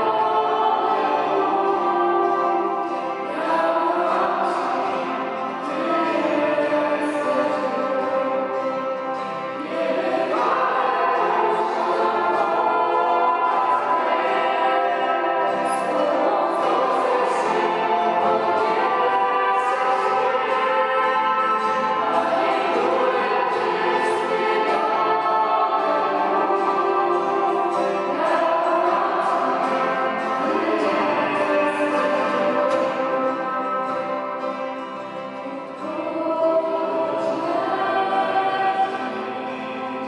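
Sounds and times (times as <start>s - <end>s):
group of women singing: 0.0s - 40.0s
keyboard: 0.0s - 40.0s
trumpet: 7.7s - 35.6s.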